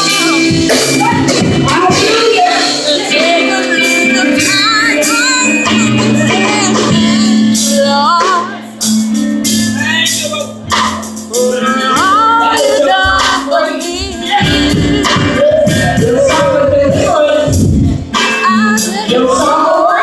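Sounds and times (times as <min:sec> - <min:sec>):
keyboard chords: 0:00.0 - 0:20.0
person singing gospel: 0:00.0 - 0:20.0
drum and percussion hits: 0:09.5 - 0:19.1.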